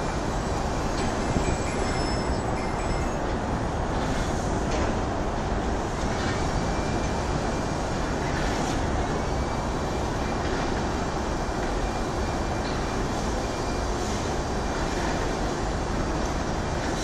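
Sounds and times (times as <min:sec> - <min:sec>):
faint high squeal: 0:01.4 - 0:03.2.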